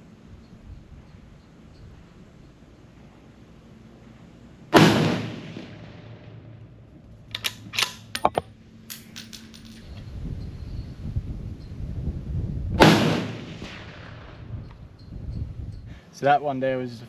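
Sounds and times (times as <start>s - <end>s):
rifle shot with echo: 4.7s - 6.7s, 12.8s - 14.5s
rifle bolt metallic clacks: 7.1s - 9.9s.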